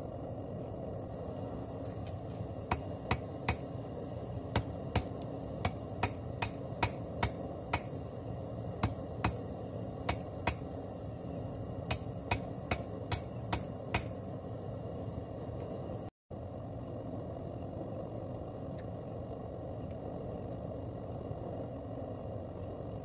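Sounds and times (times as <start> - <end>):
steady low rumble: 0.0 - 23.0
hammer striking hot steel: 2.6 - 3.8, 4.5 - 8.1, 8.8 - 10.8, 11.9 - 14.2.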